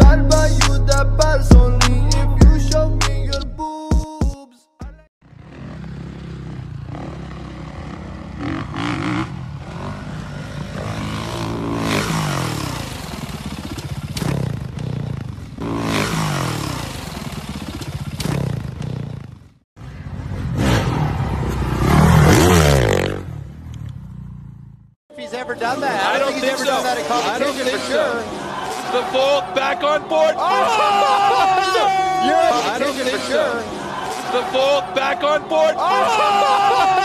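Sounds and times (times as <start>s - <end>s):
dirt bike engines revving: 5.2s - 37.0s.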